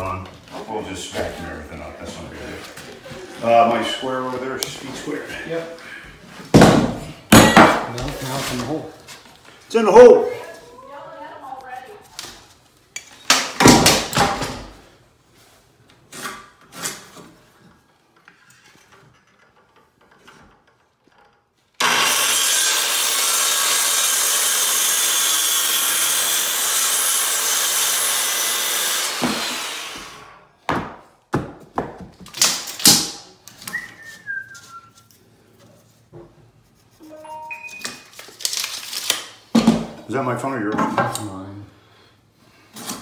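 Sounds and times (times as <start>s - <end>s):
circular saw cutting wood: 21.8s - 30.3s.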